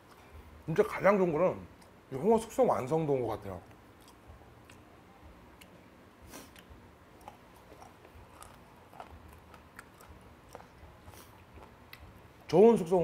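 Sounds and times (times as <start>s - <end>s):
person chewing food: 4.0s - 4.9s, 6.3s - 12.3s
mouth clicks and crunches: 5.6s - 12.1s.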